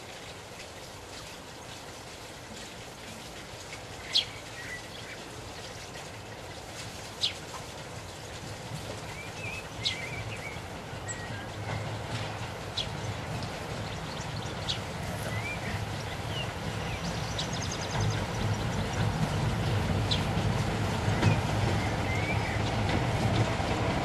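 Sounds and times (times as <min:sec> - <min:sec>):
diesel locomotive engine rumble: 0:07.8 - 0:24.0
soft bird twittering: 0:09.1 - 0:11.9, 0:13.9 - 0:19.0
bird chirping: 0:09.2 - 0:11.9, 0:13.8 - 0:19.1.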